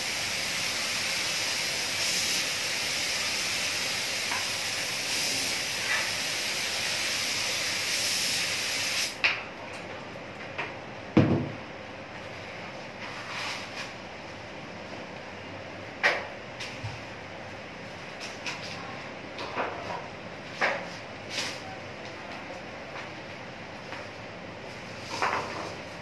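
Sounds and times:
paint spray gun hissing: 0:00.0 - 0:09.2.

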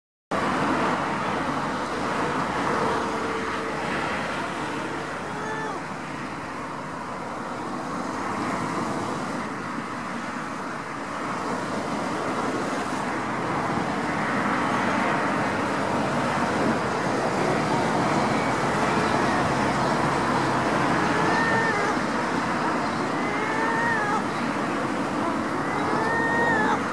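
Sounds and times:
road traffic noise: 0:00.3 - 0:26.9.

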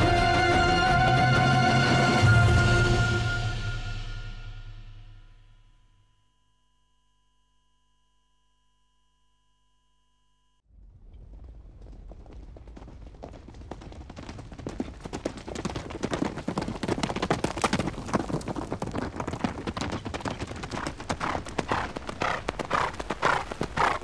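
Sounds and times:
horse hoofbeats galloping: 0:11.0 - 0:24.0.

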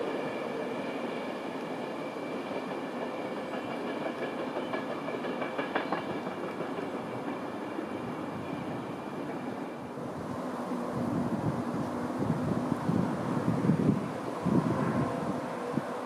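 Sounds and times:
train rail rumble: 0:00.0 - 0:16.0.

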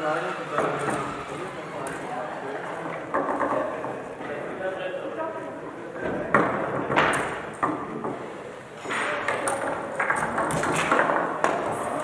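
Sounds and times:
foosball ball clacking: 0:03.0 - 0:04.0, 0:08.9 - 0:12.0.

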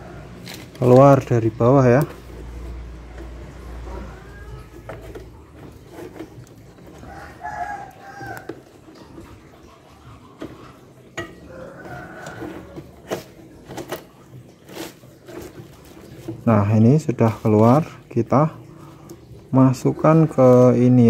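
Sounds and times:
chicken clucking: 0:05.3 - 0:13.6
rooster crowing: 0:06.8 - 0:08.7, 0:11.2 - 0:13.0.

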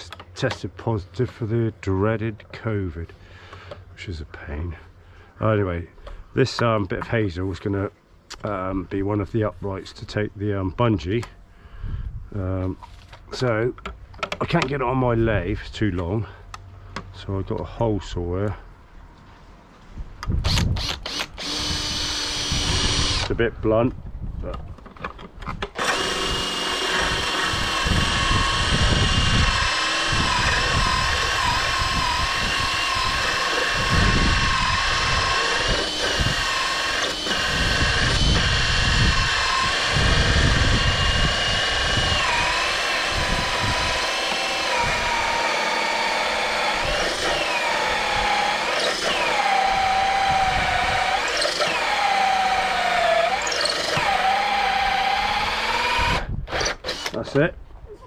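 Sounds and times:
cordless drill motor whine: 0:20.4 - 0:23.4, 0:25.7 - 0:57.3.

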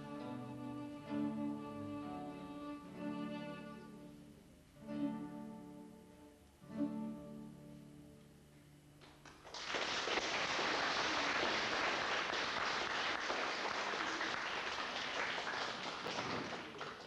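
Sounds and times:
violin and guitar music: 0:00.0 - 0:08.4
audience applause: 0:09.4 - 0:17.0.

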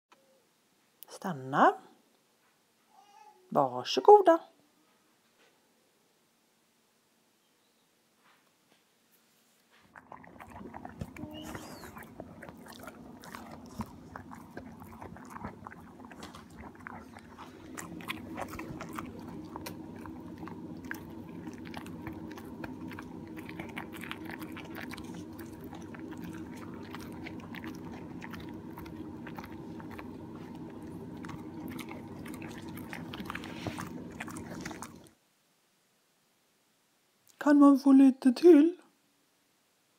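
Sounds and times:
dog chewing: 0:09.9 - 0:35.2
steady low hum: 0:09.9 - 0:35.2.

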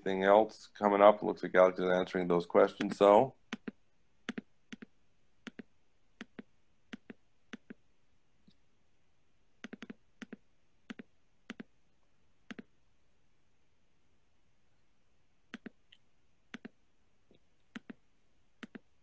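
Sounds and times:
computer mouse clicking: 0:02.8 - 0:07.8, 0:09.6 - 0:11.7, 0:16.5 - 0:16.8, 0:18.6 - 0:18.8.

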